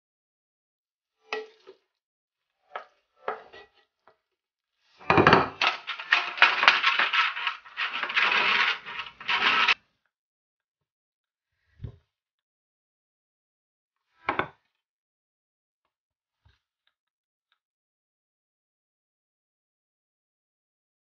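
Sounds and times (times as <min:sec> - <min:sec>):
spatula scraping a frying pan: 0:02.7 - 0:03.8, 0:05.0 - 0:09.8
clatter: 0:05.6 - 0:09.8.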